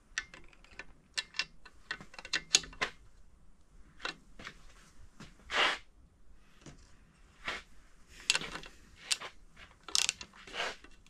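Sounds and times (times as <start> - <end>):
hand tools clicking on metal: 0.0 - 3.0, 8.3 - 11.0.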